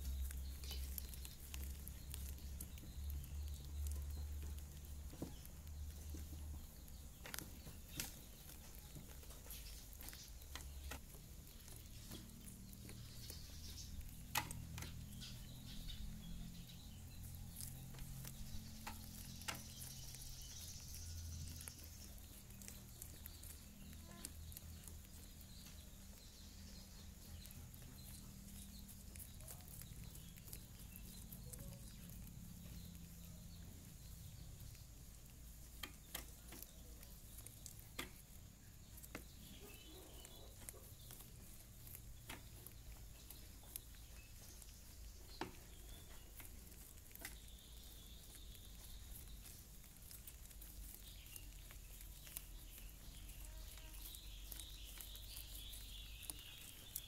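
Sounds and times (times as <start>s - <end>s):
rabbits gnawing corn: 0.0s - 57.0s.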